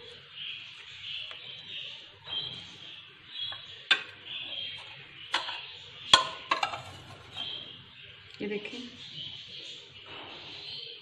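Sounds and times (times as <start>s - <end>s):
faint high chirp: 0.0s - 6.2s.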